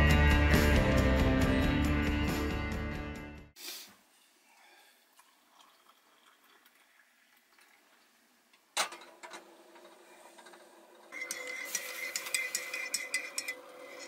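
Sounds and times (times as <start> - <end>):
kettle hissing on gas hob: 8.6 - 14.0
metal kettle set down: 8.8 - 9.4.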